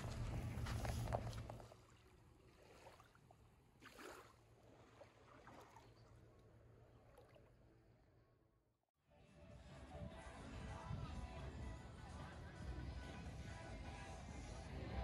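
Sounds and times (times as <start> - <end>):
water splash: 0.0 - 6.3
feet sloshing in shallow water: 0.0 - 8.0.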